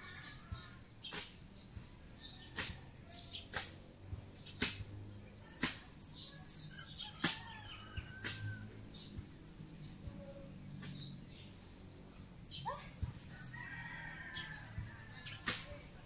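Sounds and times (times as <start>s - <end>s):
small birds chirping: 0.0s - 16.0s
blade slashing grass: 4.5s - 6.0s.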